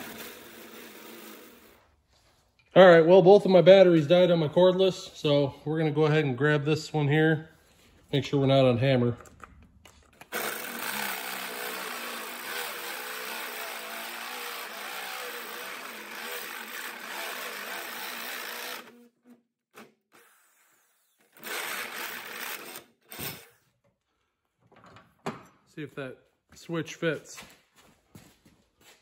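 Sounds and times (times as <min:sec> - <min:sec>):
electric drill boring through metal: 0:00.0 - 0:01.8, 0:10.2 - 0:19.1, 0:19.8 - 0:23.6.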